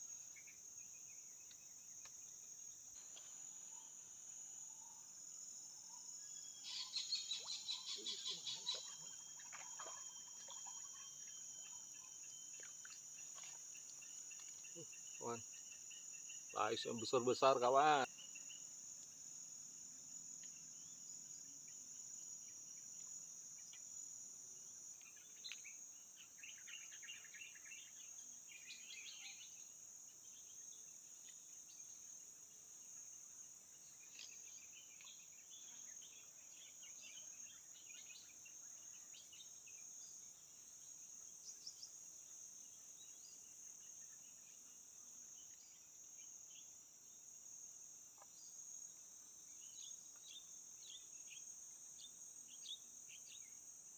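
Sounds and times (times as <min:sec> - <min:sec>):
insects droning: 0:00.0 - 0:53.9
short chirping calls: 0:06.6 - 0:13.4.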